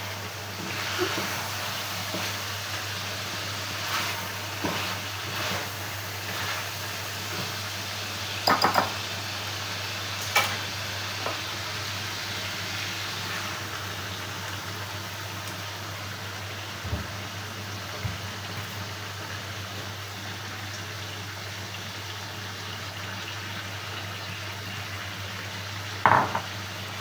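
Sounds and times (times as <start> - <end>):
chicken sizzling in a pot: 0.0 - 27.0
loud knocks against pot: 8.5 - 8.9, 26.1 - 26.5.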